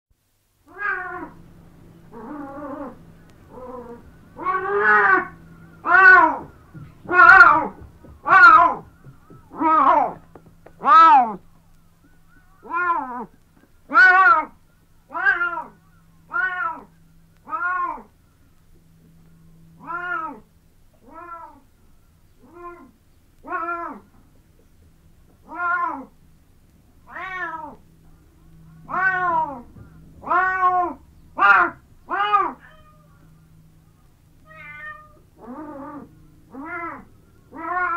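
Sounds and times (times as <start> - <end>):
cat meowing: 0.7 - 1.4, 2.1 - 10.2, 10.8 - 11.4, 12.6 - 13.3, 13.9 - 18.1, 19.8 - 21.6, 22.4 - 24.1, 25.4 - 26.1, 27.1 - 27.8, 28.8 - 33.4, 34.4 - 37.9.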